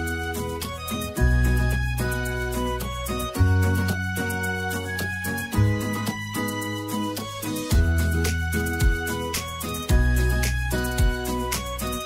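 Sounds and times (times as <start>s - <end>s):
background music with steady beat: 0.0s - 12.0s.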